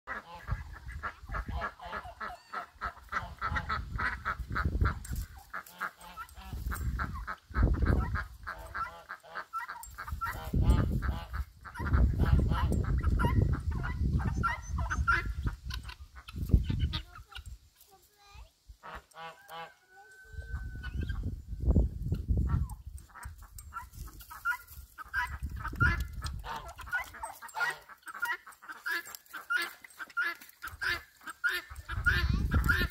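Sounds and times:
geese honking: 0.1s - 16.3s, 18.8s - 19.8s, 24.3s - 32.9s.

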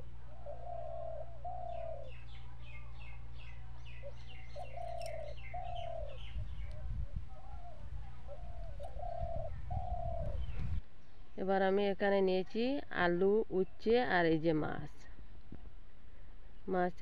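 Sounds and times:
dove cooing: 0.0s - 3.1s, 3.9s - 10.8s
rough low rumbling: 0.0s - 10.8s
small bird chirping: 0.0s - 11.2s.

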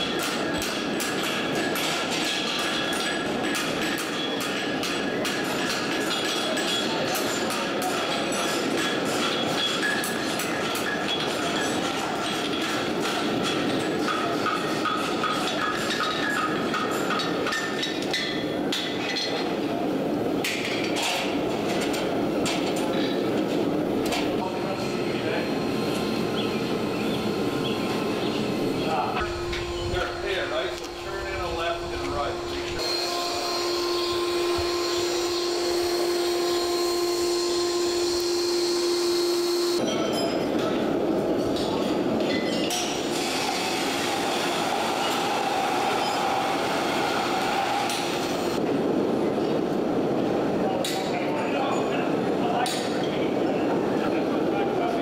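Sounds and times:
gas burner roaring: 21.2s - 39.8s, 42.9s - 49.1s.

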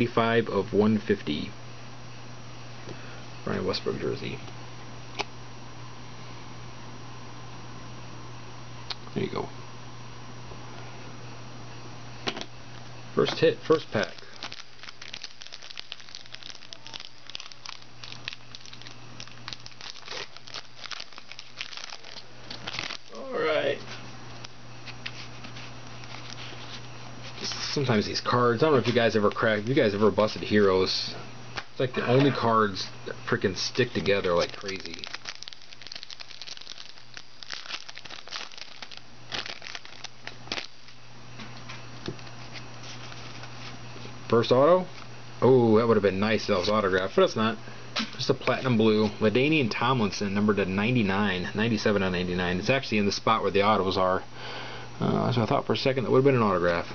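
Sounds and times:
foil wrapper crinkling: 13.6s - 23.2s, 24.9s - 27.7s, 28.8s - 30.4s, 33.6s - 41.0s.

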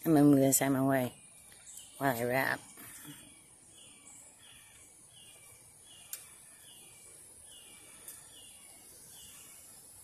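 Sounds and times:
sharp clicks: 6.1s - 6.3s.

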